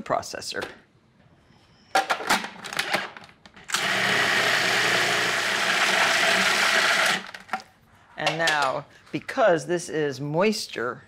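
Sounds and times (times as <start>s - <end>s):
food processor motor running: 3.7s - 7.3s.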